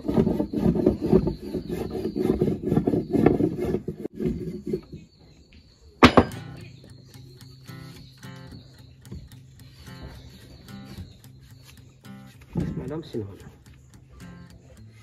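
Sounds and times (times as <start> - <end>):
soft guitar music: 6.3 - 15.0.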